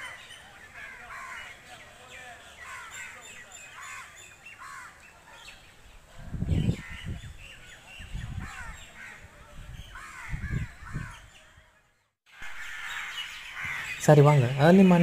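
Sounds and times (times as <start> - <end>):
crows cawing: 0.0 - 1.8, 2.4 - 5.0, 8.4 - 9.3, 9.9 - 11.3, 12.3 - 15.0
small birds chirping and trilling: 0.0 - 15.0.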